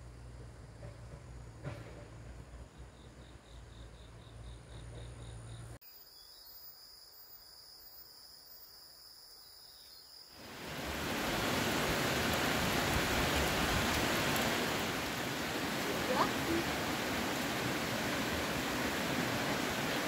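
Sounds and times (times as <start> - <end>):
running water rushing: 10.4 - 20.0.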